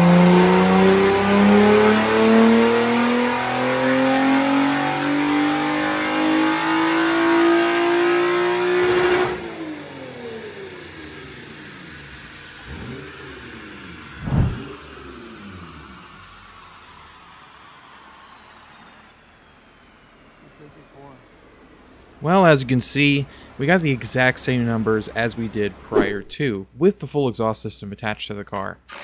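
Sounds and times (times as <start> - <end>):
car engine revving to redline: 0.0 - 26.3
short thump: 14.2 - 14.7.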